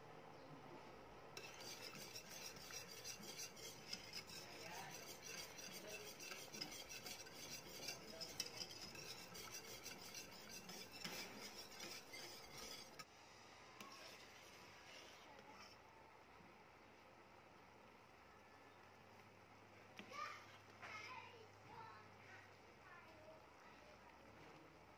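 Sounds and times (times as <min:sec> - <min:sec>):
whisk scraping a metal pot: 0:01.4 - 0:13.1, 0:13.8 - 0:15.8.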